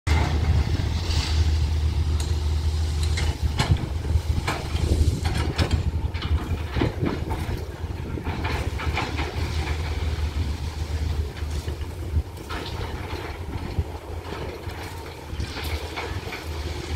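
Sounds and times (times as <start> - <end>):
diesel engine rumbling: 0.1 - 16.9
knocks and clanks: 3.0 - 10.2.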